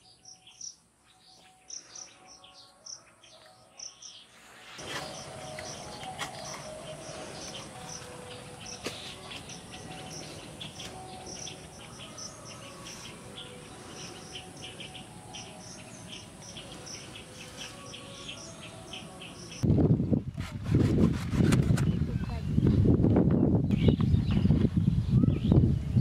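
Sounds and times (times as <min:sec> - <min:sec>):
insects chirping: 0:00.0 - 0:19.6.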